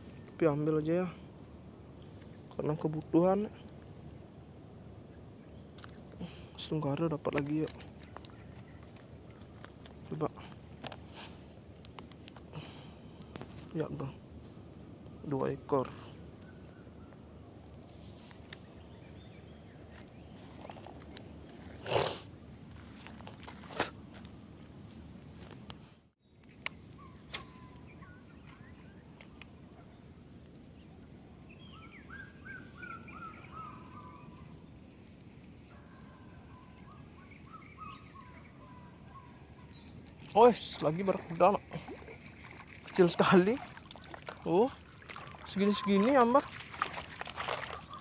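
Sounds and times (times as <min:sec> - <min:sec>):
high-pitched insect drone: 0:39.7 - 0:43.7.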